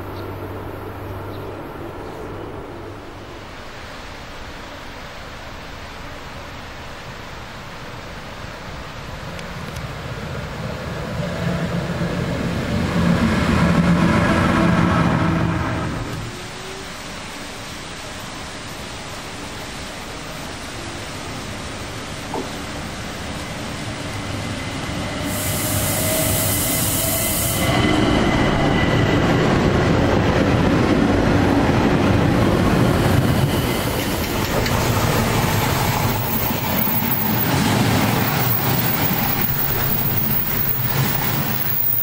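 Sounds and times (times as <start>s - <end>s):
electric train passing: 0.0s - 5.8s, 8.6s - 42.0s
wheels rumbling on rails: 9.0s - 42.0s
freight train rolling past: 9.2s - 42.0s.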